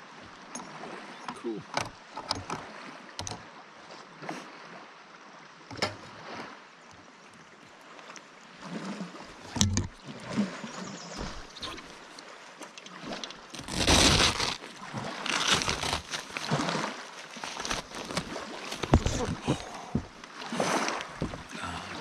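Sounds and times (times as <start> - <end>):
water lapping against a raft: 0.0 - 22.0
knocks and clicks of gear: 1.3 - 2.6, 3.2 - 3.4, 9.5 - 10.0.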